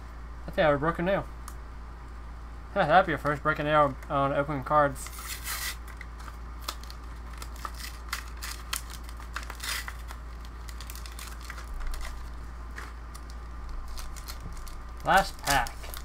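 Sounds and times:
foil wrapper crinkling: 0:04.9 - 0:16.0.

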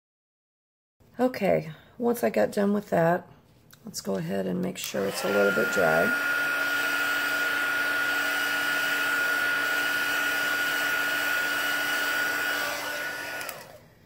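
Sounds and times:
heat tool blowing air: 0:04.8 - 0:14.0.

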